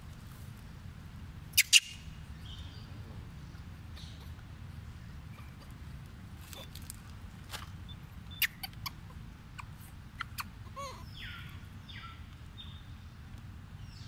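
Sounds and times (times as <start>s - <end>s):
animal chirp: 1.6s - 2.0s, 8.3s - 9.0s, 9.6s - 12.2s.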